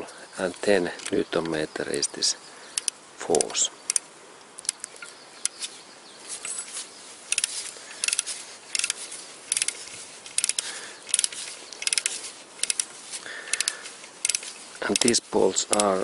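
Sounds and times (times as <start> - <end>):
torque wrench ratchet clicking: 7.3 - 12.9, 13.5 - 16.0.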